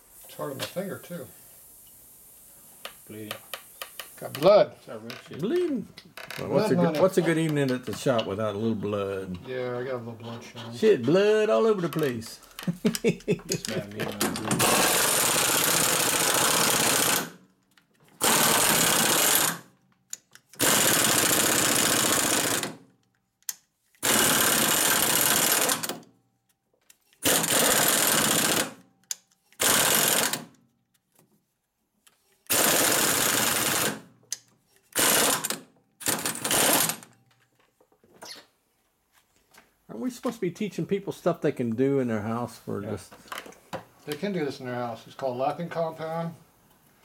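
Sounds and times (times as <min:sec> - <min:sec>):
pneumatic impact wrench hammering: 0:14.3 - 0:17.4, 0:18.2 - 0:22.9, 0:24.0 - 0:26.0, 0:27.2 - 0:28.8, 0:29.5 - 0:30.5, 0:32.4 - 0:34.1, 0:34.9 - 0:37.1.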